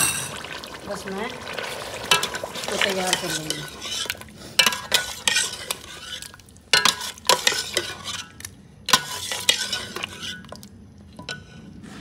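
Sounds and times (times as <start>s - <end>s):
gravy sizzling: 0.0s - 12.0s
metal spoon scraping steel pot: 2.1s - 11.7s.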